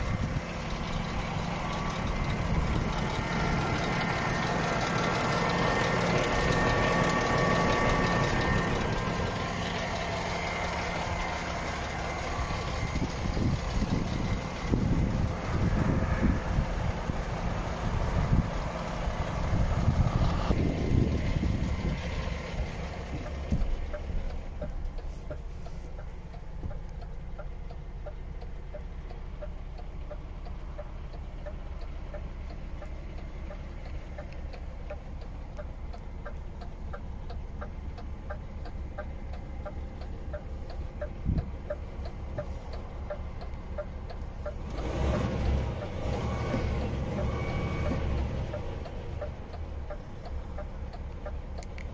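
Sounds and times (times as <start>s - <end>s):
diesel engine idling: 0.0s - 51.9s
steady ticking: 0.0s - 51.9s.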